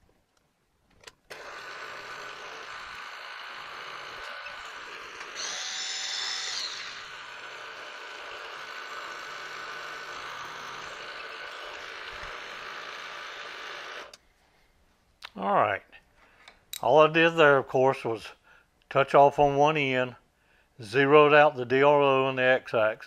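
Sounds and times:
milling machine spindle running: 1.3 - 14.2.

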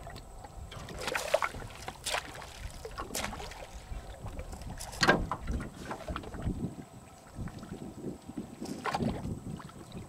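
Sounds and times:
wind rumble on microphone: 0.0 - 10.0
sharp splashes in water: 0.7 - 4.1.

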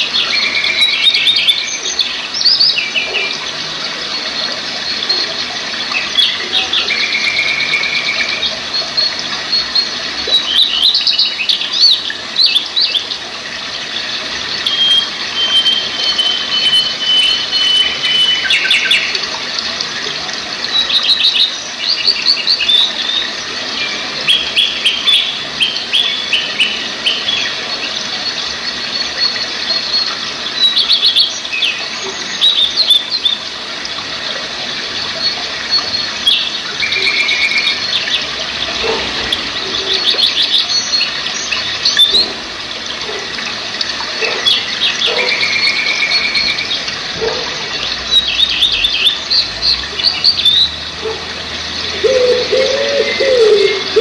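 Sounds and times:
birds singing and chirping: 0.0 - 20.0, 20.6 - 33.5, 34.9 - 54.0
stream rushing over rocks: 0.0 - 54.0
long thin bird whistle: 14.7 - 18.8.

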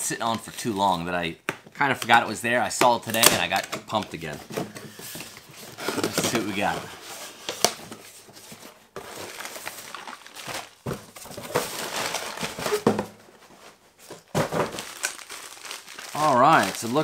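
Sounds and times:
cardboard flaps rustling and scraping: 4.2 - 15.2.

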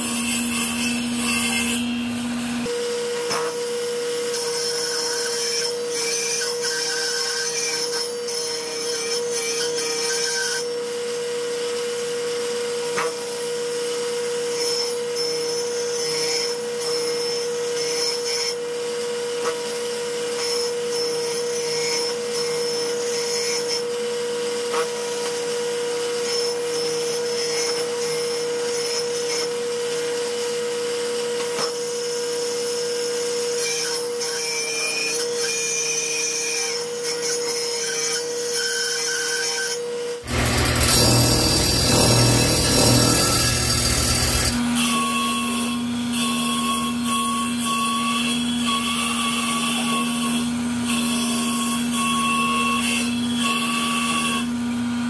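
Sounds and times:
saw blade grinding wood: 33.6 - 54.5
table saw whining: 40.2 - 55.0.

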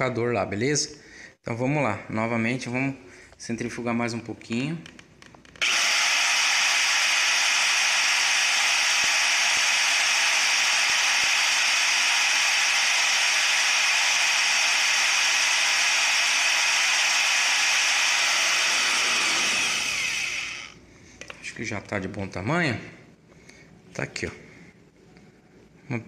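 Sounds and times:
electric drill whirring: 5.6 - 20.8.

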